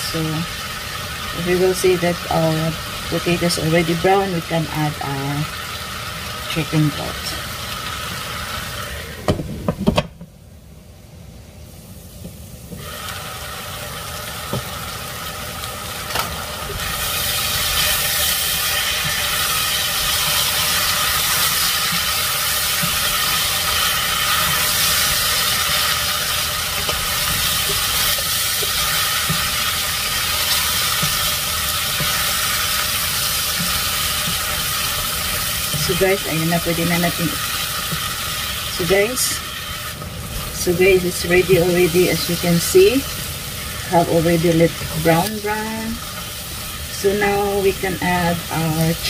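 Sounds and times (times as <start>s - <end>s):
food sizzling in a pot: 0.0s - 9.7s, 10.6s - 49.0s.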